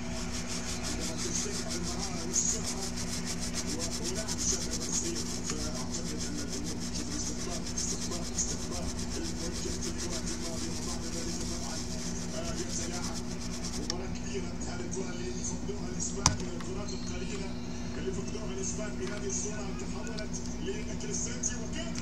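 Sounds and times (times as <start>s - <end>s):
scrubbing circuit board: 0.0s - 13.9s
steady low hum: 0.0s - 22.0s.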